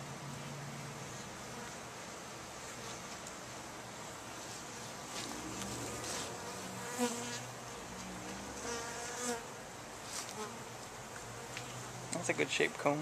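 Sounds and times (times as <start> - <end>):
bees buzzing: 3.6 - 12.1.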